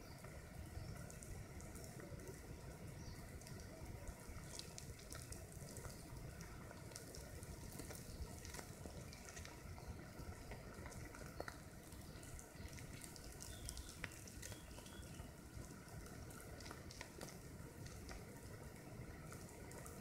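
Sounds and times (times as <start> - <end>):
ants crawling over needles: 4.4 - 18.7.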